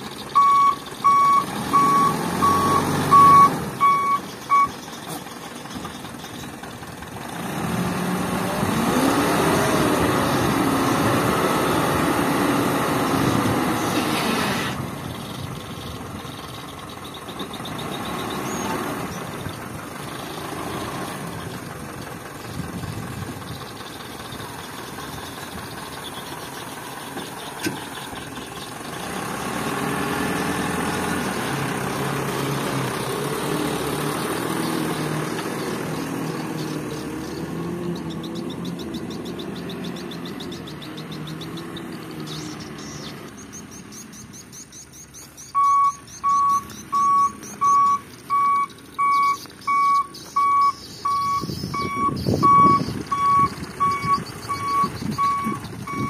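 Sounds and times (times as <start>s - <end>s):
truck reversing alarm beeping: 0.0s - 6.4s, 33.8s - 56.0s
diesel engine revving: 0.0s - 56.0s.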